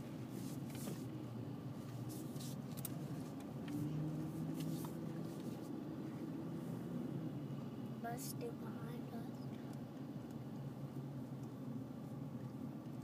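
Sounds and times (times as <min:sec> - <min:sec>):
engine and road hum: 0:00.0 - 0:13.0
light rustles and clicks: 0:01.8 - 0:05.7.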